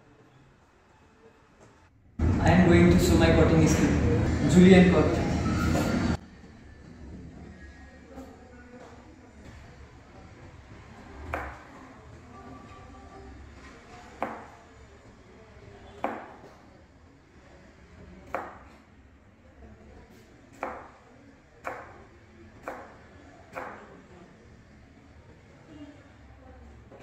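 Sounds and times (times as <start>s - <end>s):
knife chopping on cutting board: 11.3s - 11.6s, 20.6s - 20.9s.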